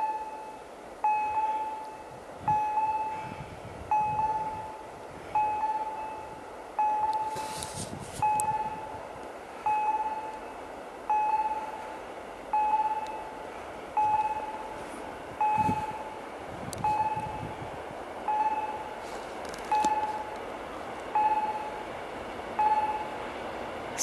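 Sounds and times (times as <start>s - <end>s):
level crossing warning bell: 0.0s - 7.6s, 8.2s - 9.0s, 9.6s - 11.9s, 12.5s - 13.4s, 14.0s - 14.8s, 15.4s - 16.2s, 16.8s - 17.5s, 18.2s - 18.9s, 19.7s - 20.4s, 21.1s - 21.9s, 22.6s - 23.2s.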